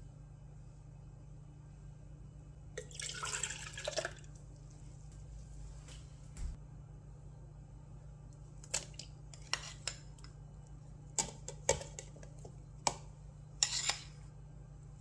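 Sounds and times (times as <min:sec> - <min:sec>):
faint low hum: 0:00.0 - 0:15.0
metal spoon scraping a bowl: 0:08.8 - 0:10.4, 0:13.6 - 0:14.3.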